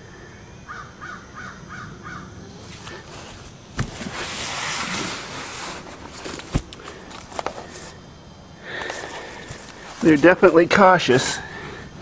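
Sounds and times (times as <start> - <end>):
camera handling rustle: 2.8 - 7.9
sharp handling knocks: 3.8 - 4.2.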